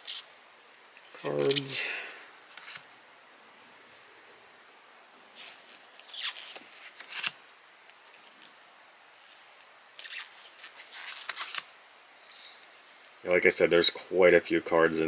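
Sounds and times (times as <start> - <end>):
cards sliding and scraping: 1.0 - 3.0, 5.4 - 8.5, 9.2 - 13.1.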